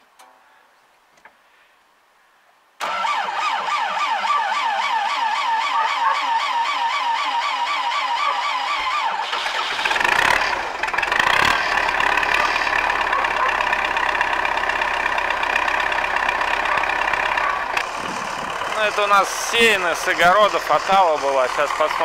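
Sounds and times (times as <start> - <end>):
electric starter whining: 2.8 - 22.0
diesel engine running: 4.4 - 22.0.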